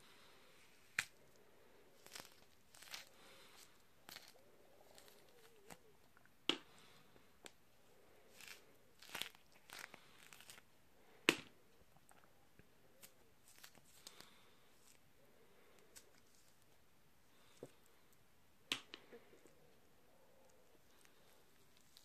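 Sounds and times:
citrus peel tearing: 0:00.8 - 0:01.2, 0:02.0 - 0:05.8, 0:08.3 - 0:10.6
peel cracking: 0:02.0 - 0:05.8, 0:08.3 - 0:10.6.

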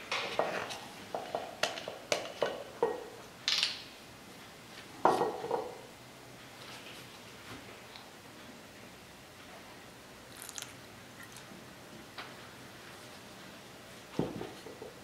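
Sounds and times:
dishes clattering: 0:00.2 - 0:03.2, 0:05.0 - 0:05.8.

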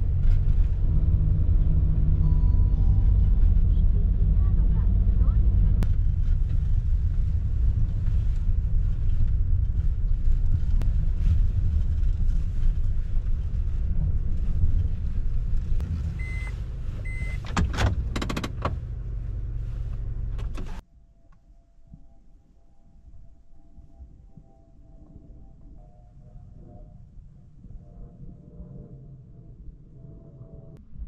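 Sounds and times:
car engine rumbling: 0:00.0 - 0:20.8.

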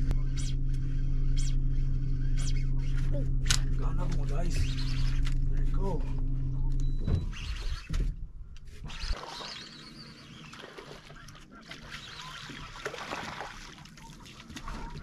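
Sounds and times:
low hum: 0:00.0 - 0:15.0
fish splashing at water surface: 0:09.1 - 0:15.0.

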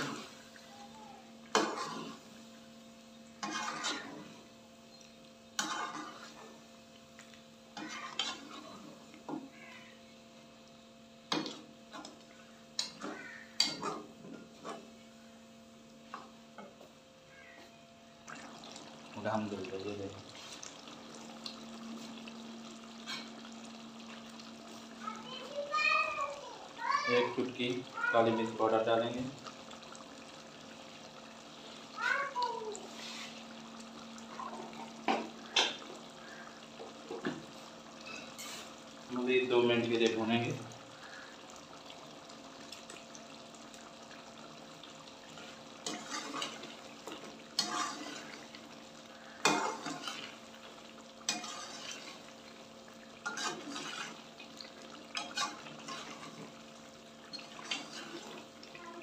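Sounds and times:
faint steady hum: 0:00.0 - 0:59.0
meat sauce sizzling and bubbling: 0:00.0 - 0:59.0
metal spatula scraping a pot: 0:01.6 - 0:02.2, 0:03.4 - 0:04.2, 0:05.6 - 0:06.4, 0:07.8 - 0:08.9, 0:38.0 - 0:38.7, 0:45.8 - 0:46.6, 0:47.2 - 0:48.4, 0:49.4 - 0:50.3, 0:51.3 - 0:52.3, 0:53.2 - 0:54.2, 0:55.1 - 0:56.5, 0:57.3 - 0:58.4.

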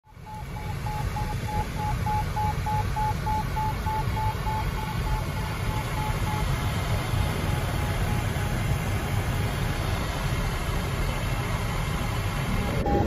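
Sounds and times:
variometer beeping: 0:00.1 - 0:09.4, 0:12.6 - 0:13.0
air rushing past cockpit: 0:00.6 - 0:13.0.

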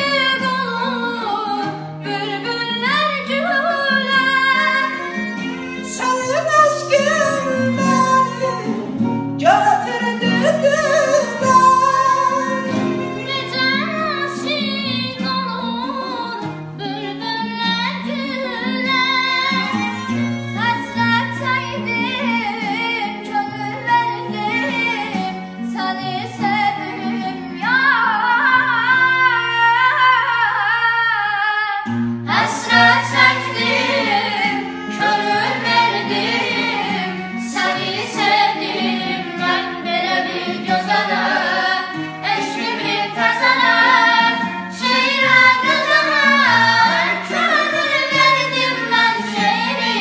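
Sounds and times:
girl singing: 0:00.0 - 0:05.0, 0:05.9 - 0:08.7, 0:10.3 - 0:50.0
instrumental accompaniment: 0:00.0 - 0:30.2, 0:31.9 - 0:50.0
boy singing: 0:05.8 - 0:08.8, 0:09.5 - 0:20.0, 0:32.3 - 0:50.0.

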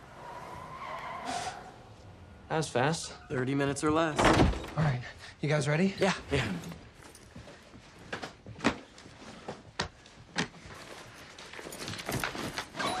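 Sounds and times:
cloth rustling: 0:06.6 - 0:13.0.

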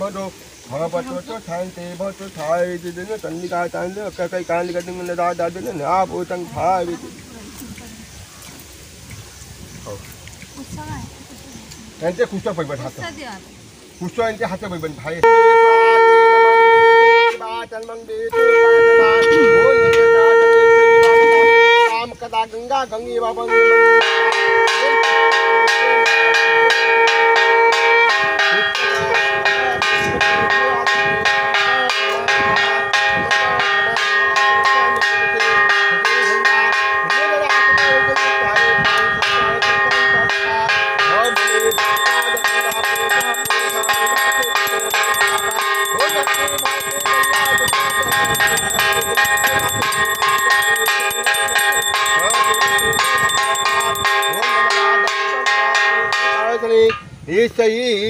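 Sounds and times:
bell rung rapidly: 0:28.1 - 0:56.7
conch shells blown: 0:40.8 - 0:55.4.

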